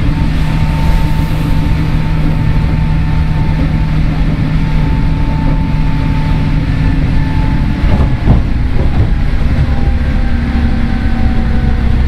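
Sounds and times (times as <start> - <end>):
train motor whine: 0.0 - 12.0
train wheels rumbling: 0.0 - 12.0.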